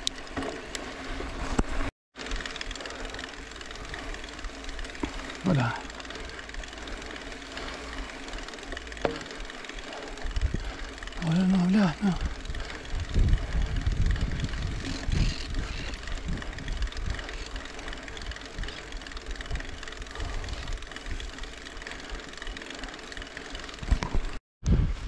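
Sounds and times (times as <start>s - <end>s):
wind buffeting microphone: 10.2s - 21.5s, 23.9s - 25.0s.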